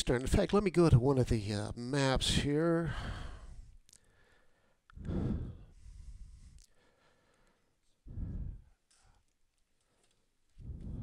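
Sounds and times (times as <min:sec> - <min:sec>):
man breathing out: 0:02.9 - 0:08.8, 0:10.6 - 0:11.0.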